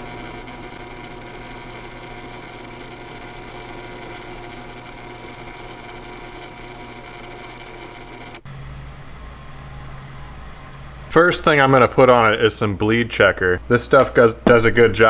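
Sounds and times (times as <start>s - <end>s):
power tool whining: 0.0s - 8.5s.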